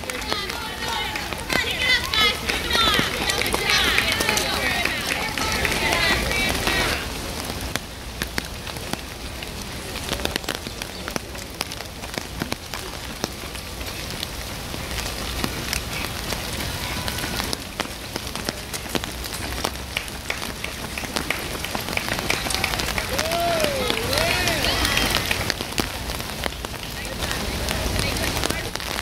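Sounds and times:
rain hissing: 0.0s - 29.0s
raindrops ticking: 0.0s - 29.0s.

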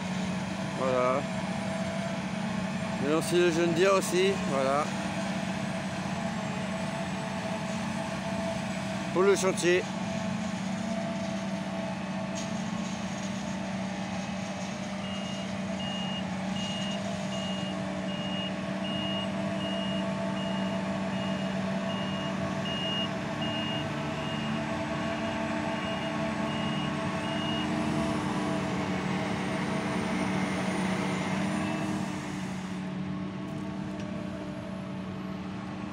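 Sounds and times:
diesel engines running: 0.0s - 35.9s
reversing alarm beeping: 15.0s - 27.8s.

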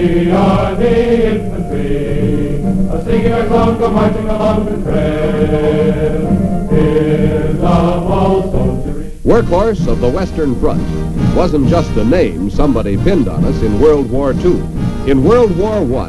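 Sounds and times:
film score with held chords: 0.0s - 16.0s.

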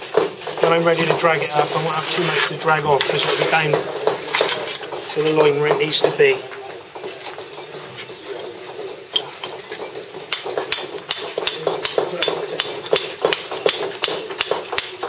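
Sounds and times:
mallet tapping chisel on stone: 9.2s - 15.0s.

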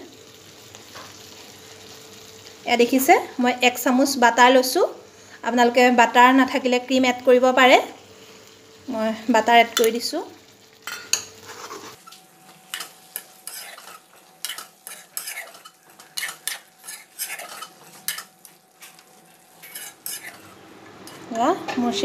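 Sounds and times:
gravy sizzling: 0.0s - 22.0s
metal spatula scraping a wok: 10.9s - 12.1s, 12.7s - 21.3s.

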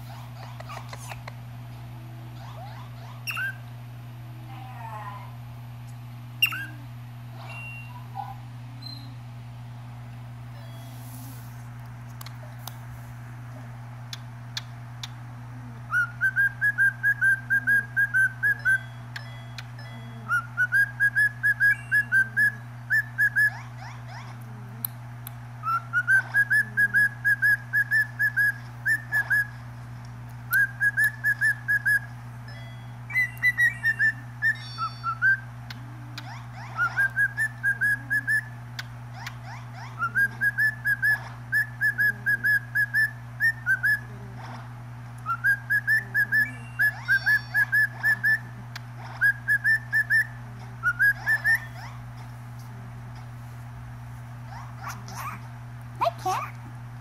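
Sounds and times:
steady low hum: 0.0s - 57.0s
cockatiel whistling and chirping: 3.2s - 3.6s, 6.4s - 6.7s, 15.9s - 19.0s, 20.3s - 23.6s, 25.6s - 29.6s, 30.5s - 32.1s, 33.1s - 35.4s, 36.2s - 38.6s, 39.2s - 44.1s, 45.2s - 48.5s, 49.2s - 52.0s.

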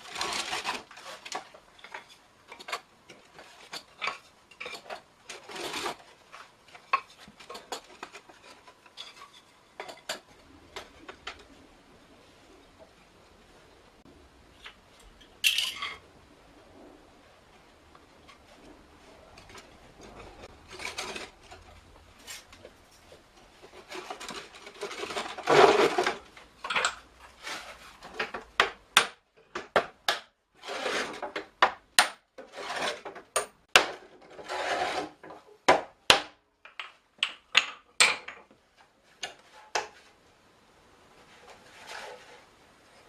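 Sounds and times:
wooden staves scraping: 0.0s - 13.6s, 16.6s - 28.6s, 30.6s - 31.6s, 32.4s - 33.3s, 34.0s - 35.5s, 41.0s - 43.0s.

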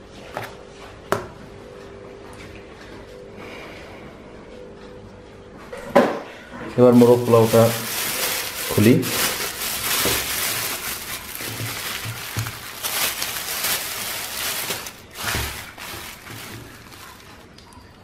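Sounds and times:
plastic bag crinkling: 6.8s - 17.6s.

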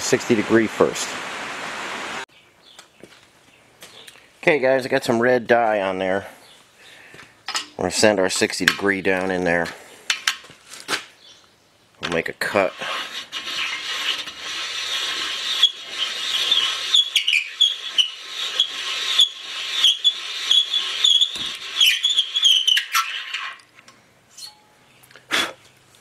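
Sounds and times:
valve seat cutter scraping: 12.7s - 23.0s.

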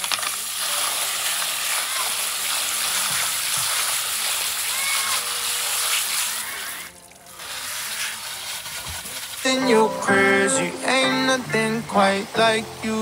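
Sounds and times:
water running and splashing: 0.0s - 9.5s.

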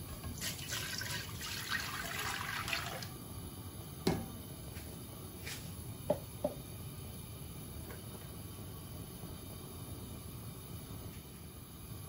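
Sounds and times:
milk pouring into metal pot: 0.2s - 3.2s.

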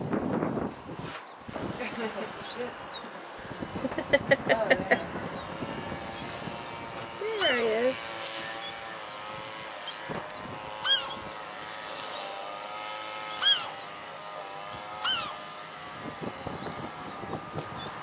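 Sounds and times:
steady background hum: 0.1s - 18.0s
gull calling: 7.2s - 11.6s, 13.2s - 14.0s, 14.7s - 15.5s.

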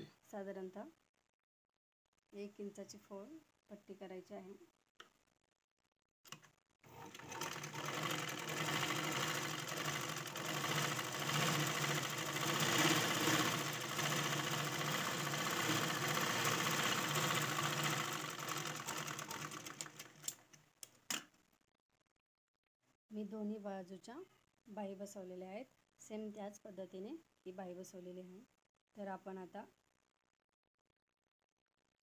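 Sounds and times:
sewing machine running: 6.9s - 20.4s.

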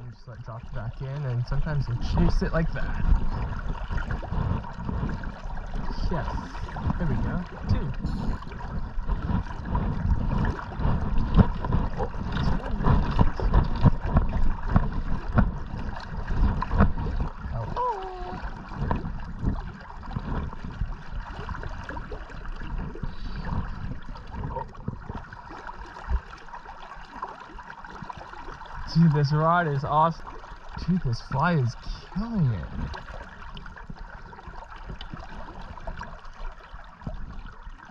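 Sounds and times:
low thumps of water: 0.0s - 37.9s
river water sloshing and gurgling: 0.0s - 37.9s.

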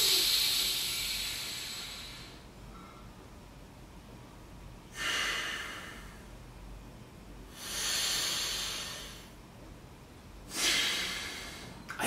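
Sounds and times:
person breathing forcefully through nose: 0.0s - 2.5s, 4.9s - 6.3s, 7.5s - 9.4s, 10.5s - 11.8s.

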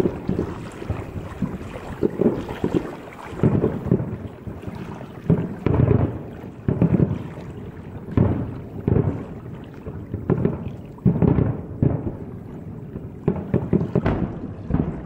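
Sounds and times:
distant firework booms: 0.0s - 4.4s, 5.2s - 15.0s
rolling rumble: 13.2s - 15.0s.

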